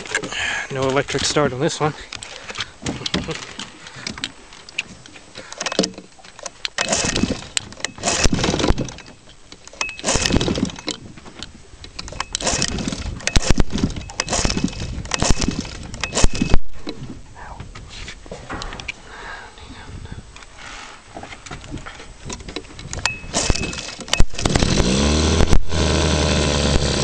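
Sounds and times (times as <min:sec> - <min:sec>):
outboard engine pull-start cranking: 0:05.4 - 0:11.0, 0:11.9 - 0:17.2, 0:22.2 - 0:27.0.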